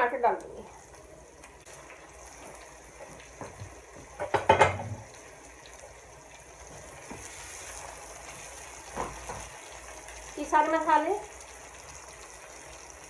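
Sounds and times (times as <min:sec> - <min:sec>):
vegetables sizzling: 0:00.0 - 0:13.0
spoon knocking and scraping pan: 0:03.3 - 0:05.1, 0:08.9 - 0:09.5.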